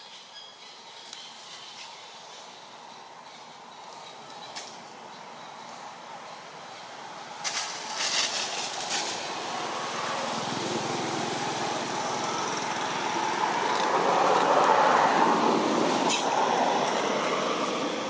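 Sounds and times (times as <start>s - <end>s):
vehicle engine running: 7.0s - 18.0s.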